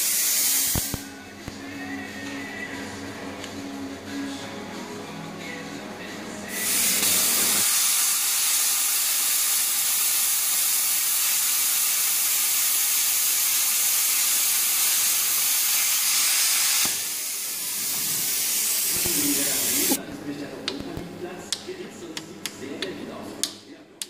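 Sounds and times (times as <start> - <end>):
plasma cutter hissing: 0.0 - 1.0, 6.5 - 20.0.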